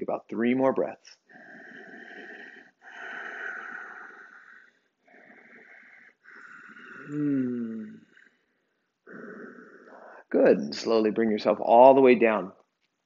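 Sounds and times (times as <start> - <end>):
person breathing deeply: 1.3 - 8.5, 9.1 - 10.4.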